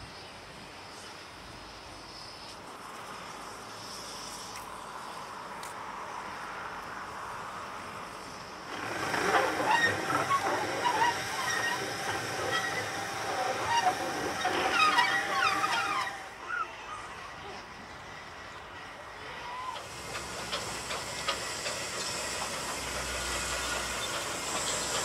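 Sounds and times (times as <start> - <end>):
steam locomotive hissing: 0.6 - 5.3, 7.8 - 25.0
station background noise: 7.3 - 25.0
short high squeals: 8.7 - 17.2.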